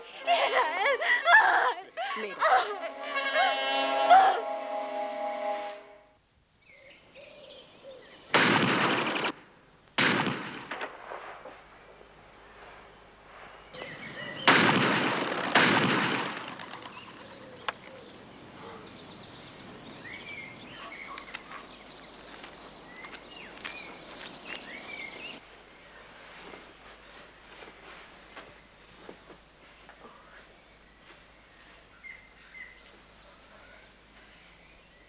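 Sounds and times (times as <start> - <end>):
small birds chirping: 6.6 - 9.3, 13.5 - 14.6, 16.8 - 29.0, 29.7 - 35.0
shotgun blasts: 8.3 - 9.4, 10.0 - 11.6, 14.4 - 17.0.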